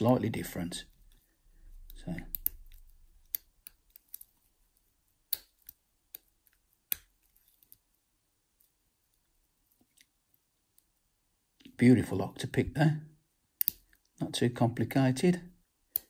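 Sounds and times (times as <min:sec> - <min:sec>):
lock pick metallic clicks: 0:13.6 - 0:13.9.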